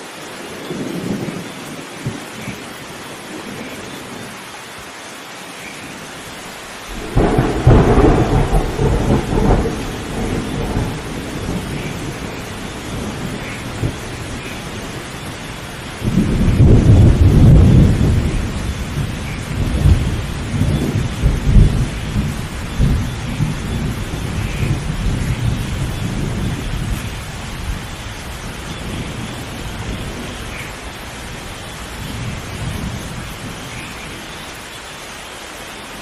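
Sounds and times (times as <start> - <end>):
steady rain falling: 0.0 - 36.0
thunder rumbling: 6.9 - 34.4.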